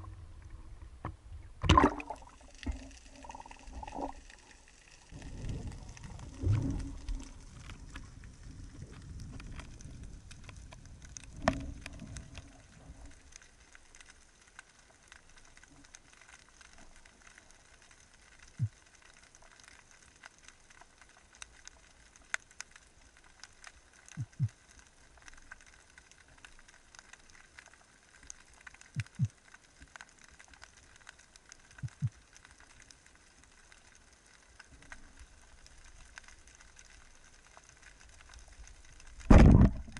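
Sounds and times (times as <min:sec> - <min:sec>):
underwater rush of water: 0:00.0 - 0:22.3, 0:23.6 - 0:39.9
faint steady crackle: 0:00.0 - 0:39.9
short low knocks and clicks: 0:39.3 - 0:39.9.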